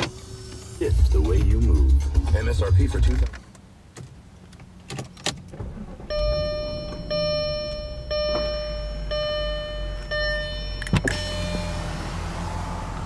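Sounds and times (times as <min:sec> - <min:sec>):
car engine idling: 0:00.0 - 0:13.0
dashboard warning chime: 0:05.8 - 0:12.8.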